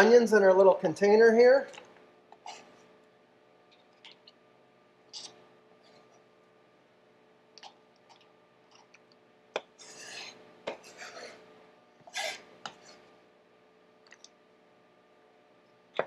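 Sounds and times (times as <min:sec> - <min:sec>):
knife scraping cutting board: 0:09.8 - 0:11.4, 0:12.1 - 0:13.0.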